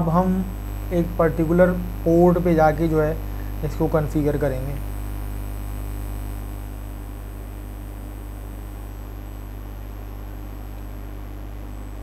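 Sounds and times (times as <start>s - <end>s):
faint hiss: 0.0s - 9.6s
electrical mains hum: 0.0s - 12.0s.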